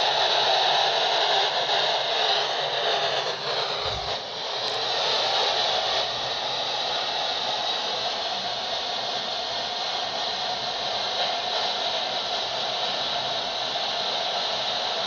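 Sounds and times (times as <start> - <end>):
radio static hiss: 1.5 - 13.4.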